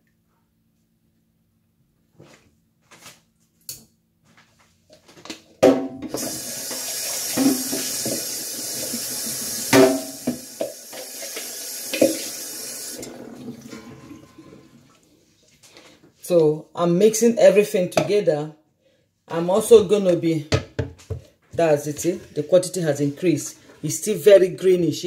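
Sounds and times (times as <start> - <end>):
juice pouring into pitcher: 6.1 - 15.1.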